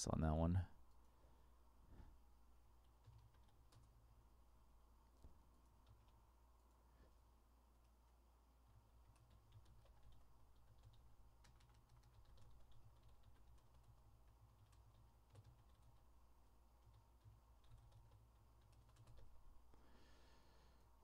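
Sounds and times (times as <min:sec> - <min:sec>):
low steady hum: 0:00.0 - 0:21.0
typing on computer keyboard: 0:02.8 - 0:04.0, 0:05.6 - 0:06.8, 0:08.7 - 0:16.1, 0:16.8 - 0:19.4.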